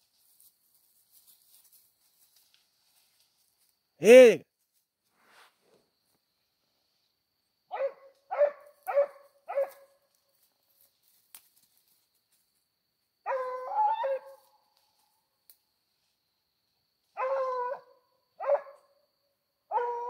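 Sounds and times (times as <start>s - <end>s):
dog barking and baying: 7.7s - 9.8s, 17.2s - 18.8s.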